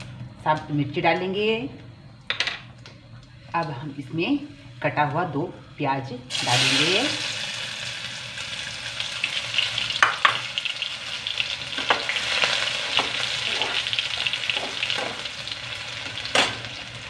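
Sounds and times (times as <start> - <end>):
onions sizzling in hot oil: 6.3 - 17.0.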